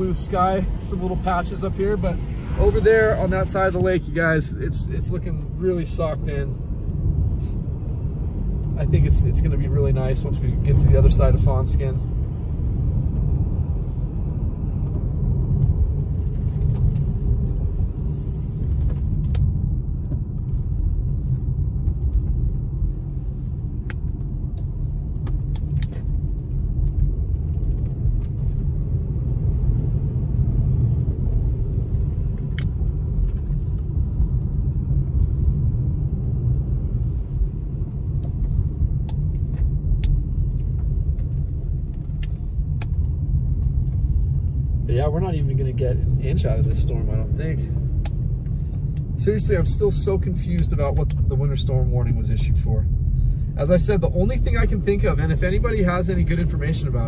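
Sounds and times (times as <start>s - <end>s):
car driving on a wet road: 0.0s - 57.0s.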